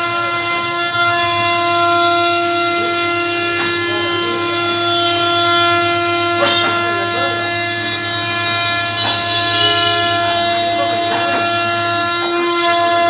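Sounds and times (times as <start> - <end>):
router spindle whining: 0.0 - 13.0.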